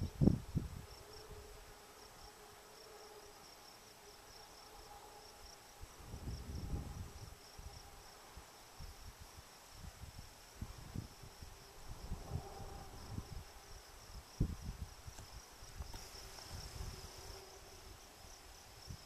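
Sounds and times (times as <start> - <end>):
wind rumble on microphone: 0.0 - 1.6, 5.4 - 19.0
insects chirping: 0.0 - 19.0.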